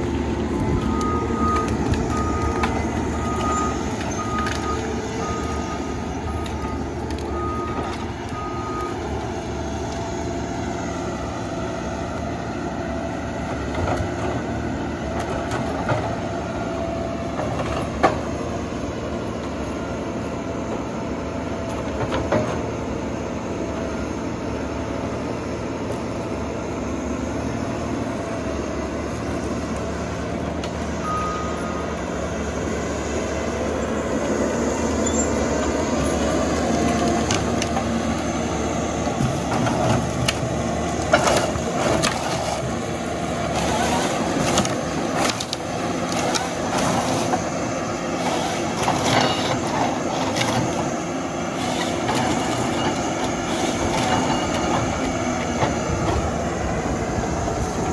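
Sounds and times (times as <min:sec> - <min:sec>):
diesel engine running: 0:00.0 - 0:57.9.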